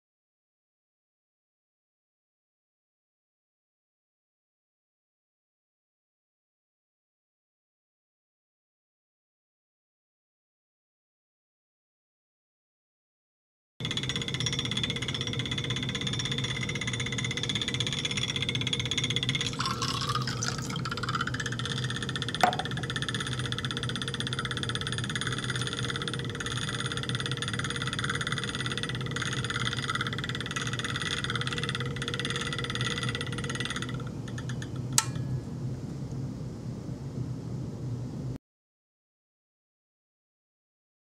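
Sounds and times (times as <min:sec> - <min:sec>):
magnetic stirrer humming and whining: 0:13.8 - 0:38.4.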